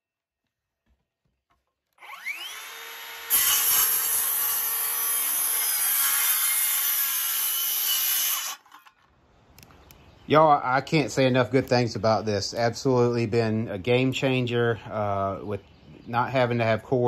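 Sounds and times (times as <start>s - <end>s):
circular saw whine: 2.0s - 5.5s
saw cutting through wood: 2.0s - 8.8s.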